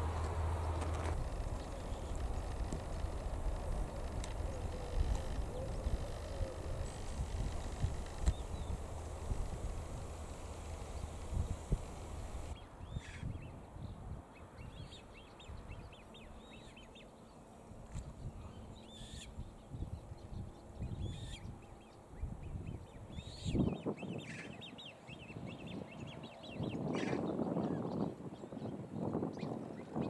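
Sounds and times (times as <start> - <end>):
low uneven rumble: 0.0 - 12.6
birds calling: 0.0 - 13.3.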